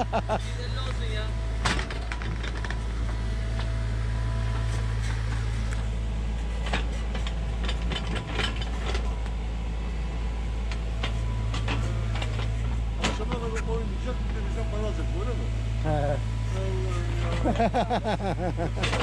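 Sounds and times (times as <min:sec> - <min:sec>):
excavator diesel engine running: 0:00.0 - 0:19.0.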